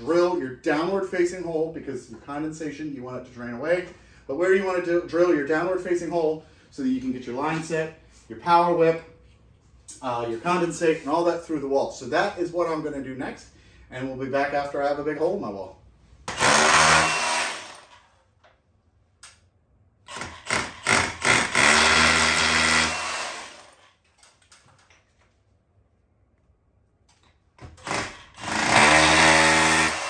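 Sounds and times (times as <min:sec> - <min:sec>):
rotary hammer drilling into wall: 0:16.3 - 0:18.0, 0:20.1 - 0:23.8, 0:27.6 - 0:30.0.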